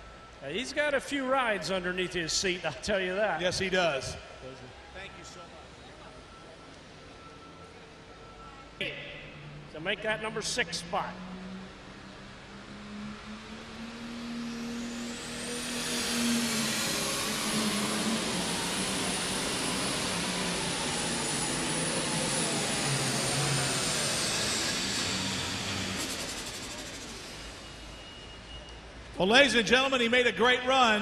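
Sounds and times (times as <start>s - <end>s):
turbo whine: 4.2s - 29.0s
diesel tractor engine at full throttle: 8.8s - 28.0s.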